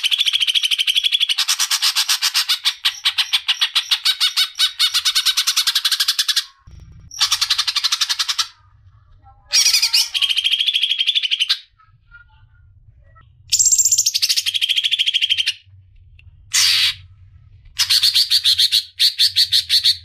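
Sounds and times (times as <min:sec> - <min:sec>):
bird singing rapid trills: 0:13.5 - 0:15.6.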